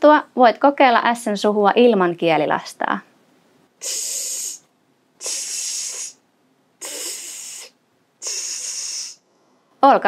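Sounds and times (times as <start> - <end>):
person hissing: 3.8 - 6.2, 6.8 - 9.3.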